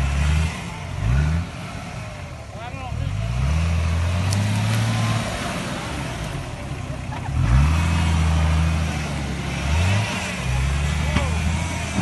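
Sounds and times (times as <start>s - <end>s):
engine revving: 0.0s - 12.0s.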